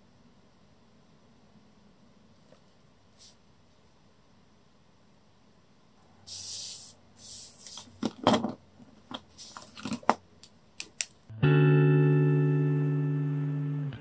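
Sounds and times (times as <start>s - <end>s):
pens clicking and clacking: 9.1s - 11.2s.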